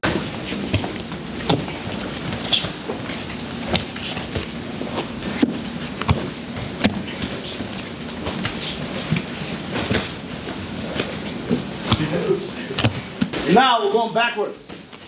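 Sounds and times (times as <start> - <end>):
bare feet slapping on mats: 0.0 - 13.6.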